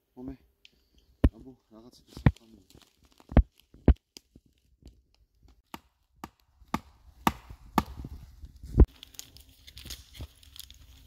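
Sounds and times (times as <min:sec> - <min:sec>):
stake being hammered: 0:05.7 - 0:08.1.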